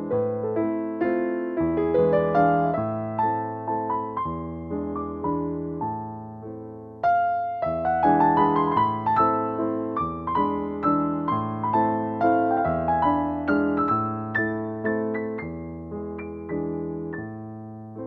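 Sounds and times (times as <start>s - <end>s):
piano music: 0.0s - 18.0s.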